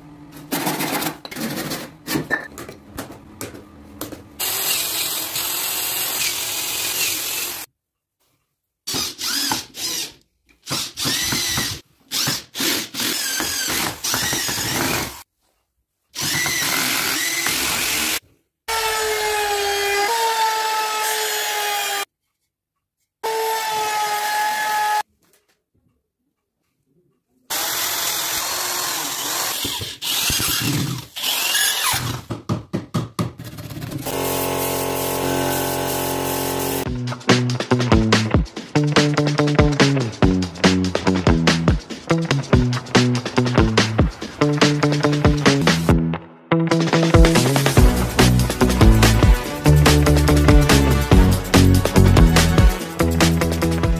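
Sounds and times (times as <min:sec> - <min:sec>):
cordless drill driving screws: 0:08.9 - 0:15.2, 0:27.5 - 0:32.0
electric router whining: 0:34.1 - 0:36.8.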